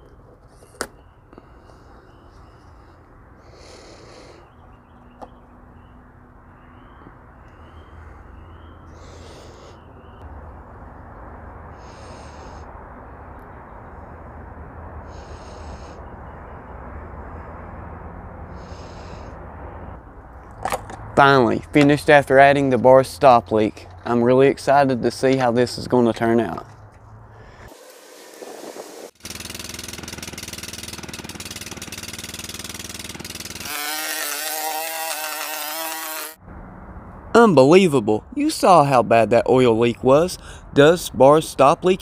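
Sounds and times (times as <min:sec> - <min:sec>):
outdoor background rush: 0:00.0 - 0:42.0
lawn mower engine running: 0:27.6 - 0:36.4.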